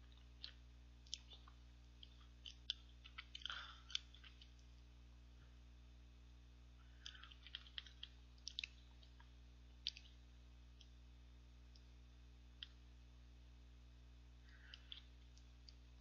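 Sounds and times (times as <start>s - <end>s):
steady low hum: 0.0s - 16.0s
faint small clicks: 7.0s - 10.2s, 12.6s - 12.8s.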